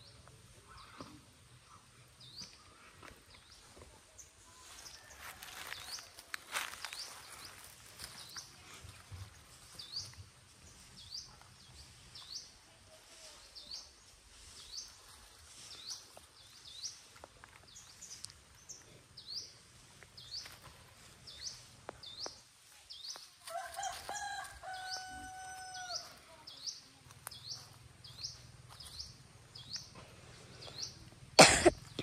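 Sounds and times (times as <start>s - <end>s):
rooster crowing: 23.4s - 26.1s.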